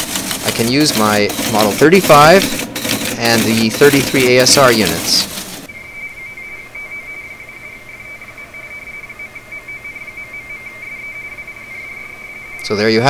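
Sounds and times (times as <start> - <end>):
warbling two-tone radio signal: 0.5 - 13.0.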